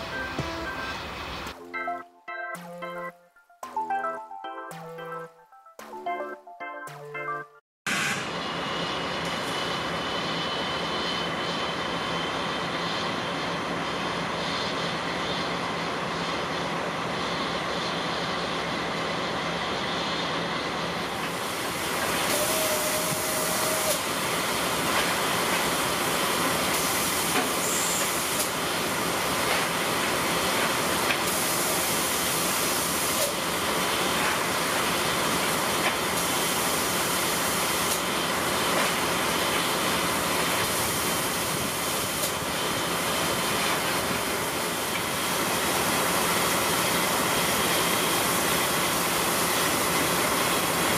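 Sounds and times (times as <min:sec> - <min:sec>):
steam hissing: 0:21.2 - 0:50.9.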